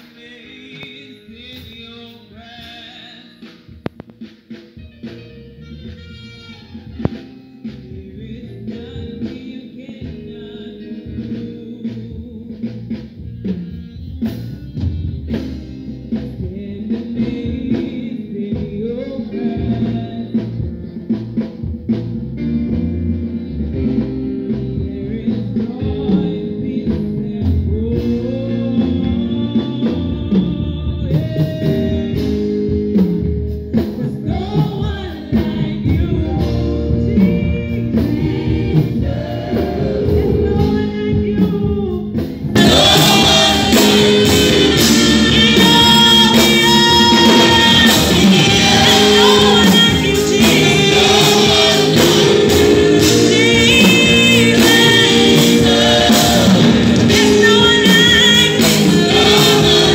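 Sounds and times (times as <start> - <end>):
choir singing gospel: 0.0 - 3.7, 16.1 - 59.9
band accompaniment: 0.0 - 59.9.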